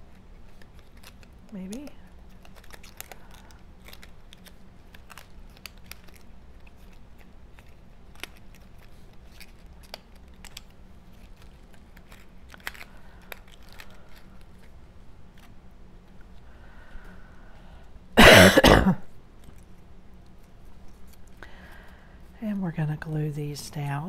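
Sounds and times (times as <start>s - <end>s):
stiff paper clicks and rustles: 0.0s - 16.4s.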